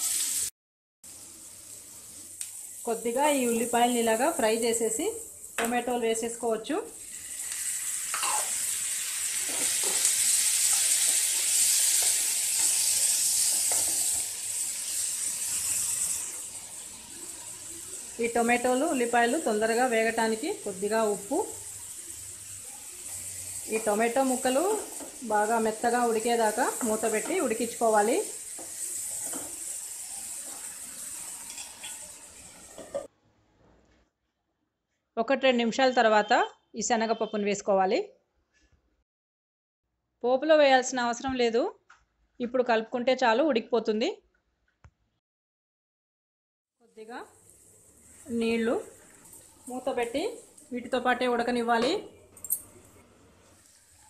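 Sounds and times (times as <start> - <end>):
onions sizzling in oil: 0.0 - 33.1, 46.8 - 54.0
spatula scraping a pan: 8.1 - 8.7, 9.3 - 14.3, 31.4 - 33.1.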